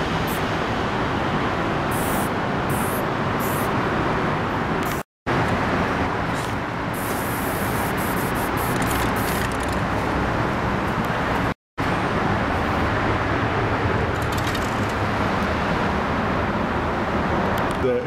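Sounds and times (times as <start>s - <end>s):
road traffic noise: 0.0s - 18.0s
spray-paint can hissing: 1.9s - 3.7s, 7.0s - 9.6s.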